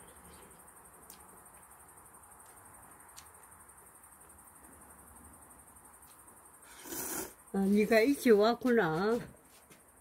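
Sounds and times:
high-pitched insect trilling: 0:00.0 - 0:09.0.

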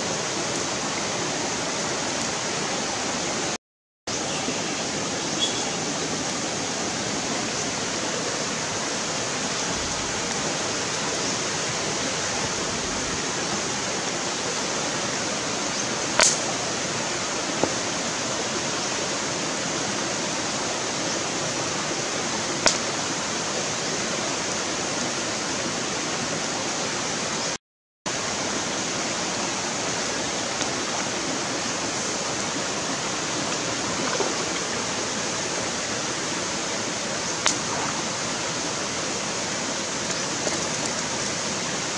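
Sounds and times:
stream rushing over rocks: 0:00.0 - 0:41.9
sharp pops: 0:16.2 - 0:16.6.

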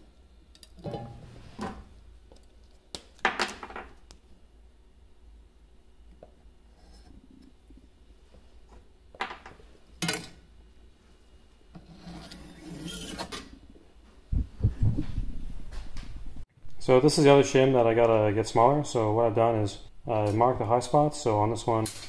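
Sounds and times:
metal rubbing on metal: 0:11.8 - 0:13.4
metal scrape: 0:11.8 - 0:13.5.

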